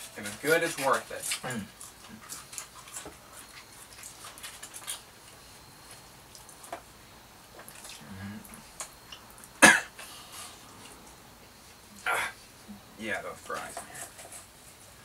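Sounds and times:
people chewing food: 0.0s - 15.0s
person coughing loudly: 9.6s - 10.0s.

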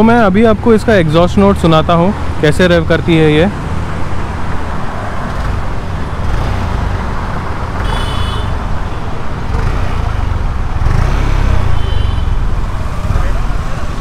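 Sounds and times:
scooter engine revving: 6.2s - 8.6s, 9.4s - 14.0s.

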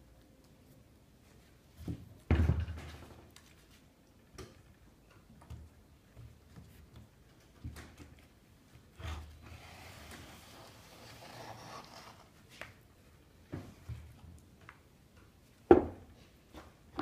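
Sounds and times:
mould scraping wet plaster: 8.8s - 12.5s.

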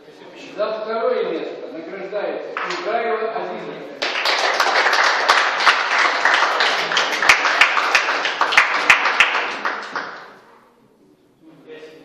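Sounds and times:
group applauding: 2.6s - 2.9s, 4.0s - 10.5s.

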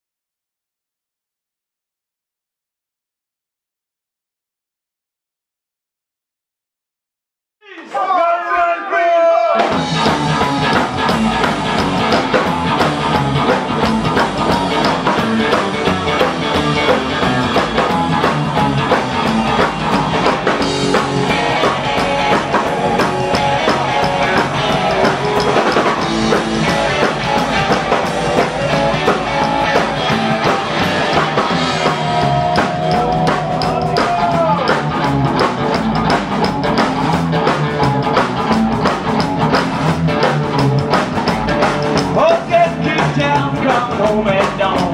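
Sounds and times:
live rockabilly band playing: 9.6s - 44.9s
slapped double bass: 9.7s - 44.9s.

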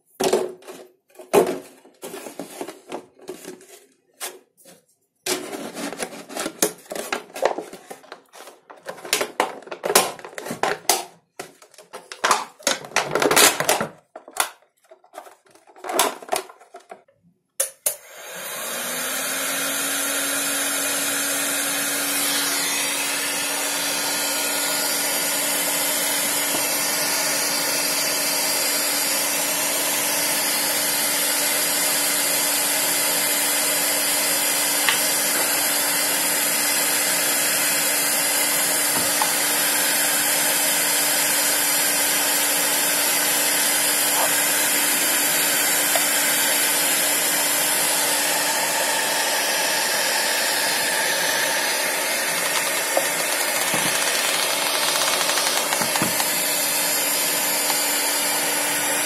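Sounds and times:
heat gun fan blowing: 17.8s - 59.0s.

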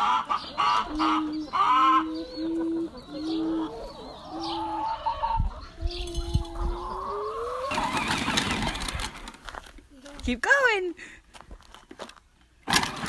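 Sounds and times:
hens clucking: 0.0s - 10.2s.

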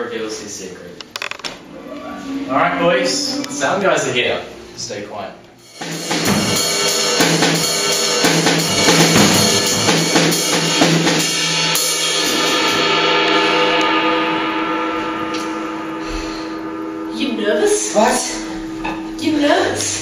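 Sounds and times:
sustained pitched notes: 1.3s - 5.5s, 12.8s - 20.0s
drum kit rock beat: 5.7s - 16.4s.

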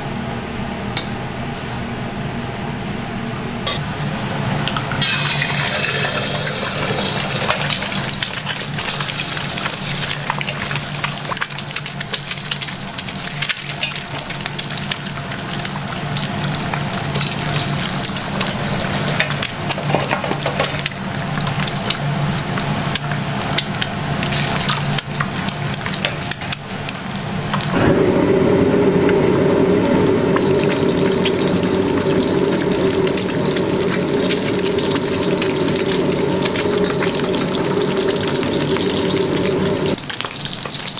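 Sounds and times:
eggs sizzling in hot oil: 5.0s - 27.8s, 28.6s - 40.9s
low steady hum: 20.7s - 40.2s
loud steady drone: 27.7s - 40.0s.

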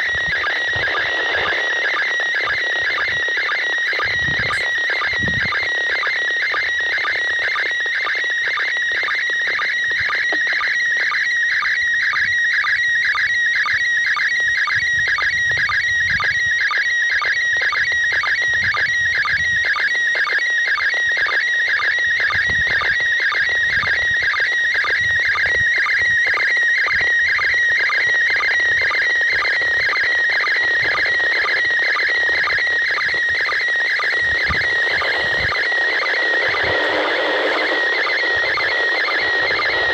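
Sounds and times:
electronic warble with beeps: 0.0s - 39.9s
static hiss: 34.4s - 39.9s.

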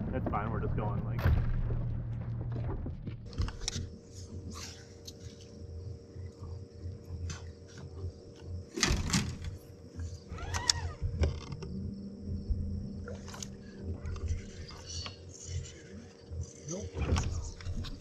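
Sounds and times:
electric trolling motor whine: 9.4s - 16.6s.

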